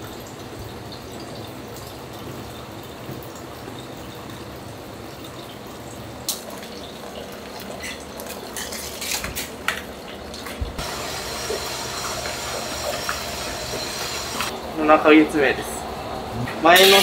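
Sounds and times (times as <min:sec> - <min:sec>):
water rushing: 0:10.8 - 0:15.0.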